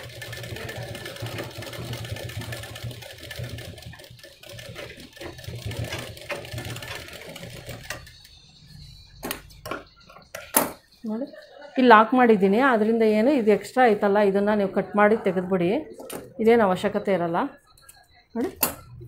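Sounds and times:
sewing machine running: 0:00.0 - 0:08.3.

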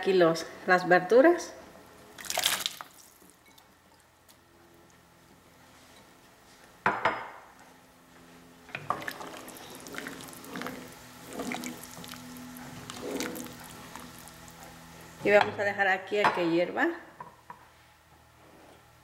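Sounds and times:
wooden spoon stirring soup: 0:08.7 - 0:15.4.

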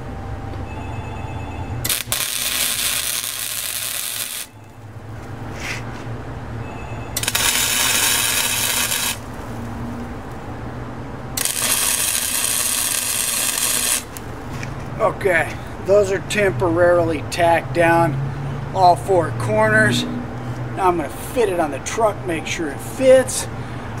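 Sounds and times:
welder arc crackle: 0:01.8 - 0:04.6, 0:07.2 - 0:09.7, 0:11.4 - 0:14.4
low welder hum: 0:01.8 - 0:05.4, 0:07.2 - 0:10.6, 0:11.3 - 0:14.7.

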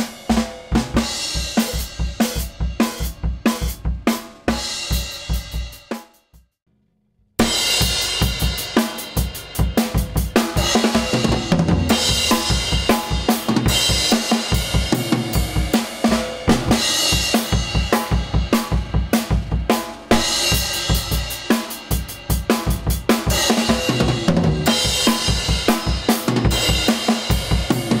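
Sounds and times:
cymbals and hi-hat: 0:00.0 - 0:06.4, 0:07.4 - 0:28.0
snare drum: 0:09.8 - 0:28.0.

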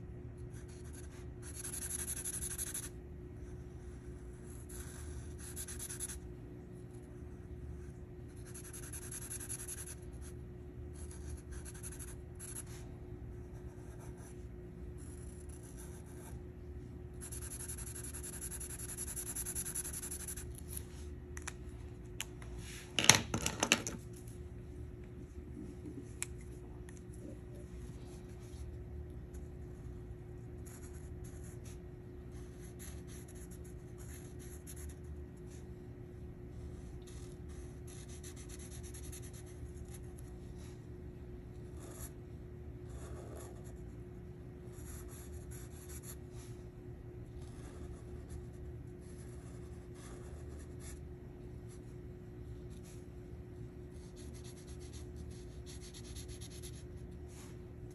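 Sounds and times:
faint steady hum: 0:00.0 - 0:57.9
marker scratching across paper: 0:00.6 - 0:02.9, 0:03.5 - 0:06.2, 0:07.8 - 0:10.4, 0:11.0 - 0:12.9, 0:17.2 - 0:20.9, 0:30.6 - 0:35.6, 0:37.0 - 0:40.8, 0:54.0 - 0:57.6.

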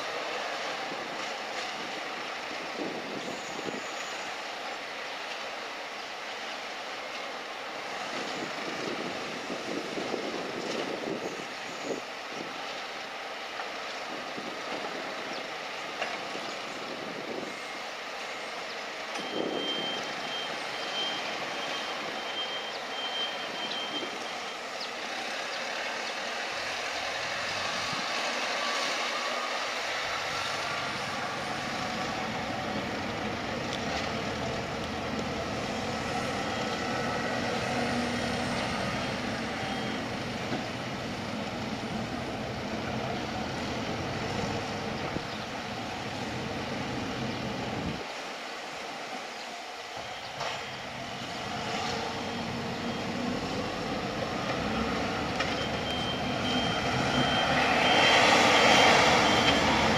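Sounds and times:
warning alarm beeping: 0:55.5 - 0:59.9.

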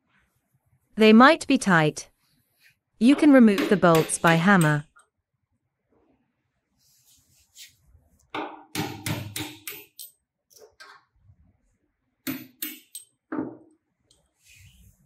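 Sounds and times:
hammer knocking metal bolts: 0:03.4 - 0:04.8, 0:08.3 - 0:10.1, 0:12.2 - 0:13.7.

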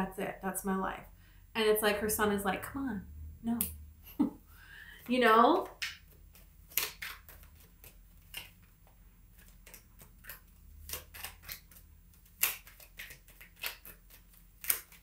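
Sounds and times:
cards being shuffled by hand: 0:05.0 - 0:15.0.

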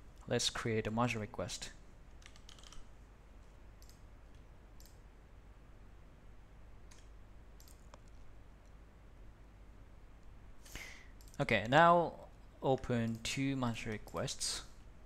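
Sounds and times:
mouse and keyboard clicks: 0:06.9 - 0:08.2.

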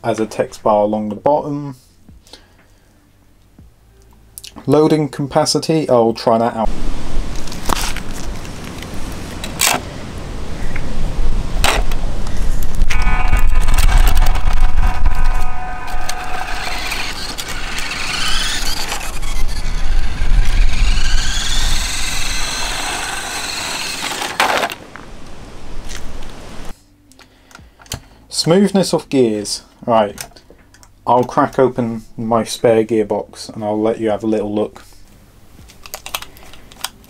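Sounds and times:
steady low rumble: 0:06.7 - 0:24.2
toy truck motor whining: 0:12.9 - 0:24.8.

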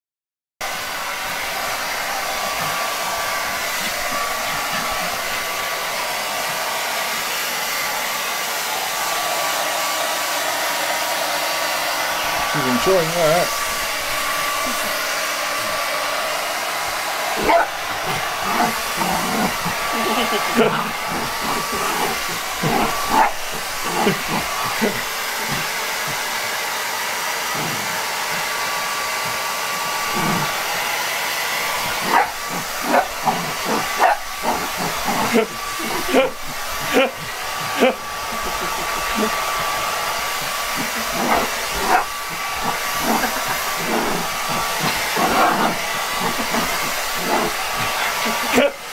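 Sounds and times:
hair dryer blowing: 0:00.6 - 0:48.9
puppy barking: 0:17.4 - 0:26.2, 0:31.8 - 0:39.8, 0:40.4 - 0:48.6.

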